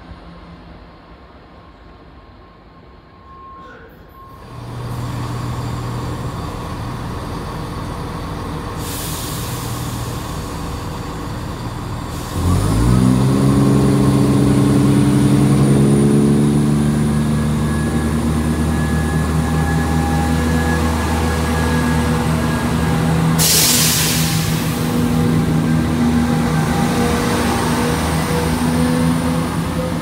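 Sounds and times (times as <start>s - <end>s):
diesel train engine: 0.0s - 30.0s
air hiss: 23.4s - 25.1s.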